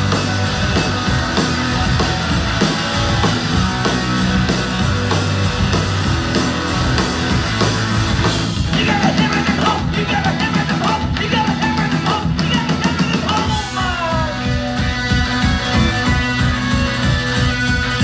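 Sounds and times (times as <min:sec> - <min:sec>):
punk rock band playing: 0:00.0 - 0:18.0
man shouting vocals: 0:08.7 - 0:14.5.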